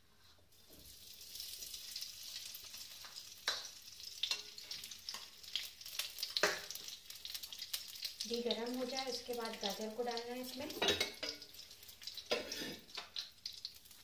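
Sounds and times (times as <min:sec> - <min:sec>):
spoon clicking on metal pan: 0:03.0 - 0:04.5, 0:06.4 - 0:06.8.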